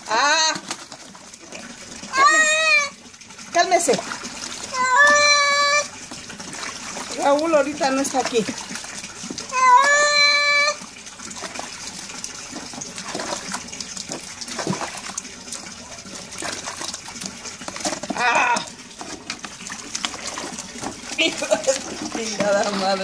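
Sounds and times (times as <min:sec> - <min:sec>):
water sloshing and splashing: 0:00.0 - 0:23.0
cat meowing: 0:04.7 - 0:05.9, 0:09.5 - 0:10.8.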